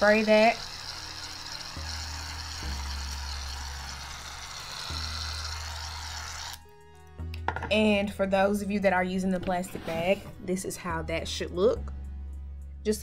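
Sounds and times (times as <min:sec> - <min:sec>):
aerosol can spraying foam: 0:00.0 - 0:06.6
soft background music: 0:00.0 - 0:13.0.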